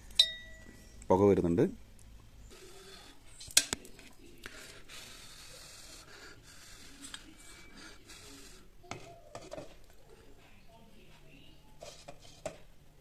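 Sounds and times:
steel bowl clinking on pan: 0.2s - 0.7s
handling and rubbing: 2.4s - 12.8s.

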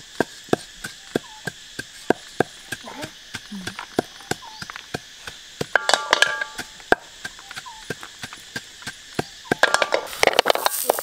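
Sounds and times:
pestle pounding in mortar: 0.0s - 10.6s
sizzling in a pan: 0.0s - 11.0s
shells clinking in metal wok: 5.8s - 6.6s, 9.6s - 11.0s.

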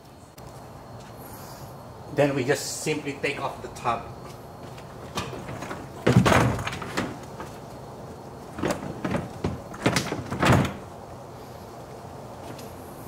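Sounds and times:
loud plastic clatter: 4.7s - 7.7s, 8.4s - 10.9s
plastic tub knocking and scraping: 4.8s - 7.6s, 8.5s - 10.8s.

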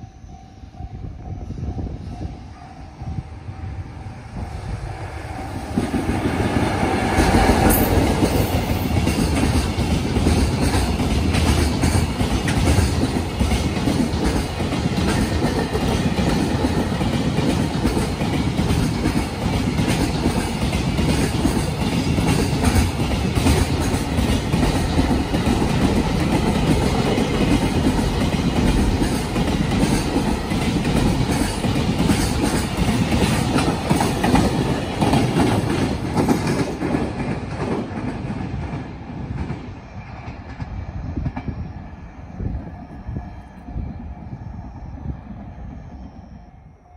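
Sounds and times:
train wheels clattering over rail joints: 5.8s - 40.7s.

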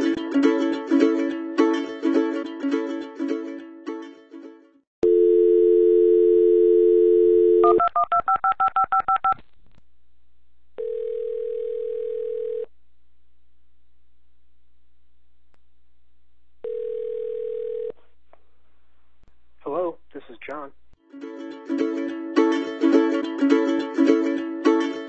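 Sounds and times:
plucked string music: 0.0s - 4.8s, 21.0s - 25.0s
telephone dial tone: 5.0s - 9.3s, 10.8s - 12.7s, 16.6s - 17.9s
touch-tone dialing: 5.0s - 9.4s.

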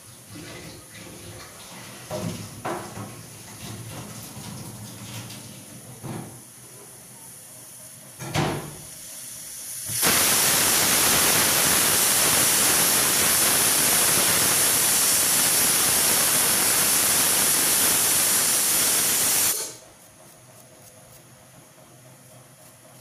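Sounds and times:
pressure cooker whistling: 8.8s - 19.8s.

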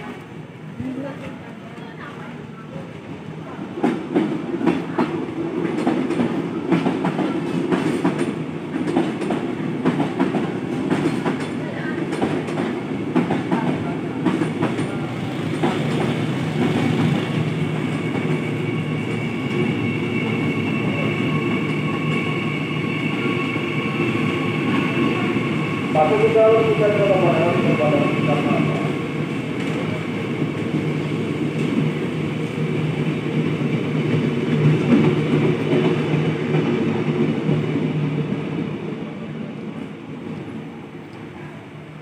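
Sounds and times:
train rumble: 0.0s - 42.0s
train wheels clacking on rails: 3.6s - 38.3s
electric train high whine: 15.3s - 39.8s.

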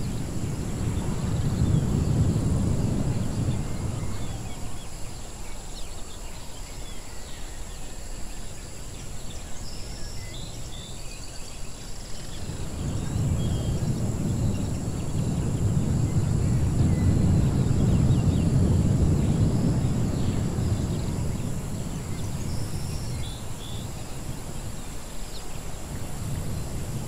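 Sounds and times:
deep rumble: 0.0s - 4.8s, 12.4s - 24.4s.

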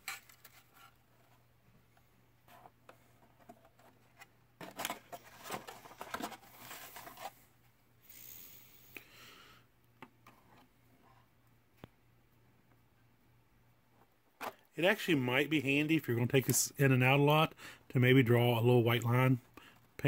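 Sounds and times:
plastic parts clicking and rattling: 3.2s - 7.3s
scraping hiss: 8.0s - 9.0s.

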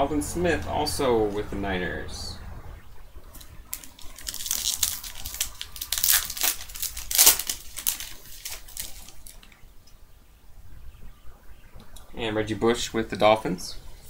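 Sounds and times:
foil wrapper tearing and crinkling: 3.4s - 9.6s.

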